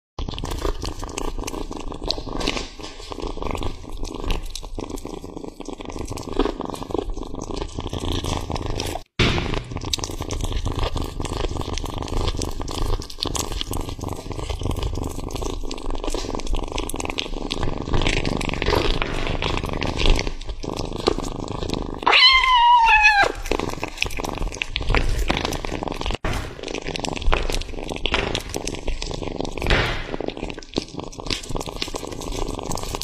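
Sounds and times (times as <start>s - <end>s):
kitten chewing clicks: 0.2s - 33.0s
kitten mewing: 22.0s - 23.9s.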